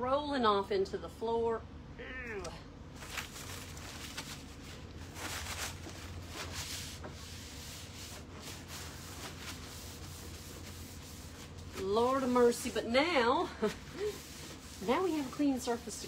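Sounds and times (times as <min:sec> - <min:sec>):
low steady hum: 0:00.0 - 0:16.0
cloth scrubbing wood: 0:05.8 - 0:16.0.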